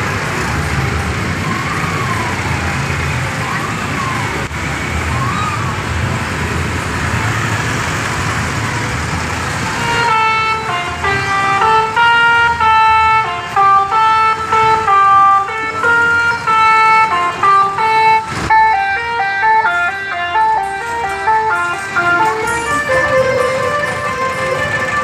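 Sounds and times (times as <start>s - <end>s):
slow traffic noise: 0.0s - 25.0s
musical horn playing melody: 9.8s - 25.0s.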